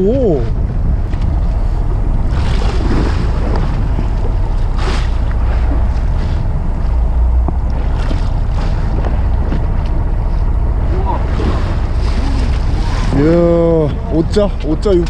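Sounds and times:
low rumble: 0.0 - 15.0
wind buffeting microphone: 0.0 - 15.0
sea sloshing against hull: 0.5 - 15.0.

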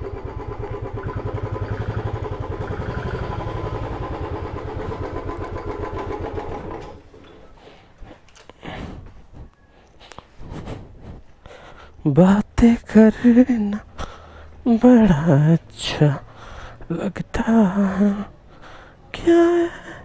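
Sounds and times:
motorcycle engine idling: 0.0 - 7.2.

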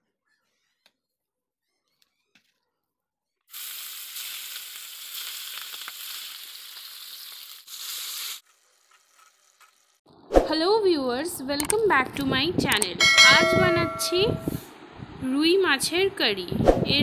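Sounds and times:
fish sizzling in hot oil: 3.5 - 10.0.

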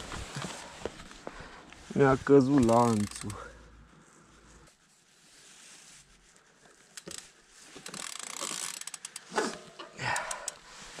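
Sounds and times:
bike chain clicking: 2.6 - 3.5, 7.0 - 10.6.

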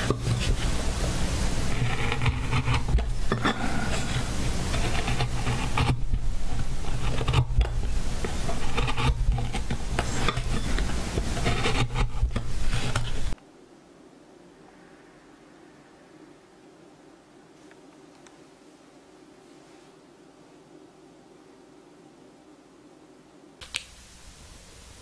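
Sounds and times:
chisel scraping wood: 0.0 - 13.4.

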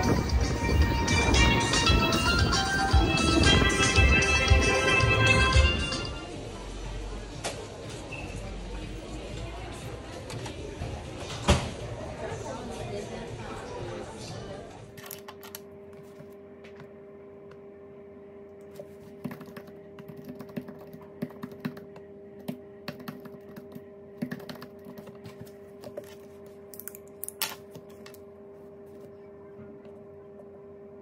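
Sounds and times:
steady low hum: 14.0 - 31.0.

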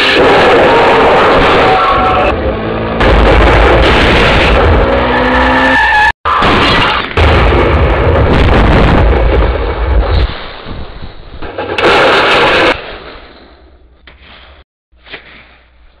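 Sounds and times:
distorted thunder rumble: 3.0 - 5.0, 7.2 - 12.8.

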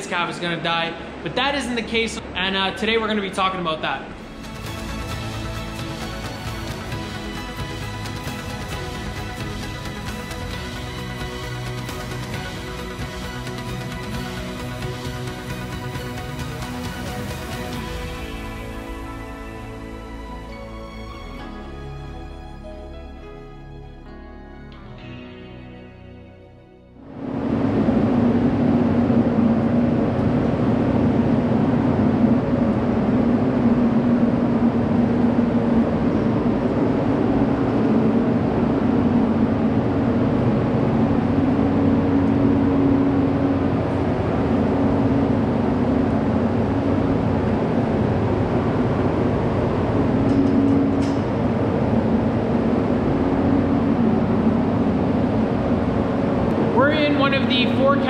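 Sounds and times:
ventilation fans droning: 0.0 - 24.0, 26.9 - 58.0.

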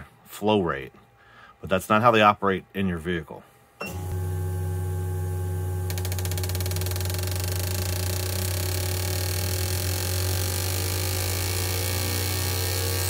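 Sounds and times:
pump humming: 3.8 - 13.0
fuel injectors clicking rapidly: 5.9 - 13.0.

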